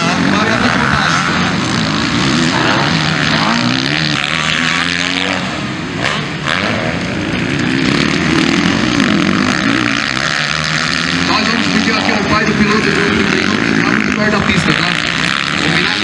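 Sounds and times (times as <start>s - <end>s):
motocross bikes revving: 0.0s - 16.0s.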